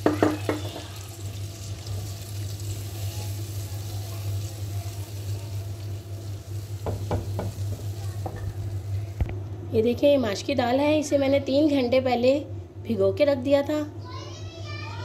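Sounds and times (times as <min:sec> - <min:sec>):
spatula knocking against pan: 0:00.0 - 0:00.9, 0:06.8 - 0:08.5
steady low hum: 0:00.8 - 0:15.0.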